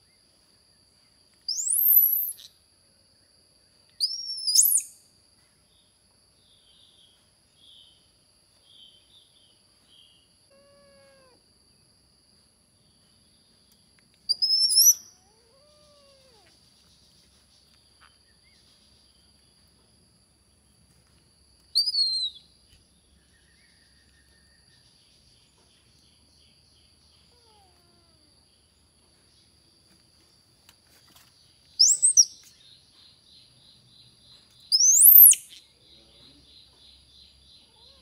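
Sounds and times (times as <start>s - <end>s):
kittens meowing: 10.5s - 11.4s, 14.4s - 16.6s, 27.3s - 28.3s, 37.6s - 38.0s.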